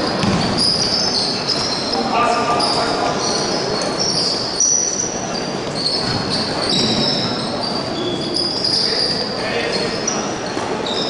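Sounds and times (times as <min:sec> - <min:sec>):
crowd murmur echoing: 0:00.0 - 0:11.0
sneaker squeaks: 0:00.0 - 0:11.0
basketball dribbling on hardwood: 0:00.2 - 0:00.6.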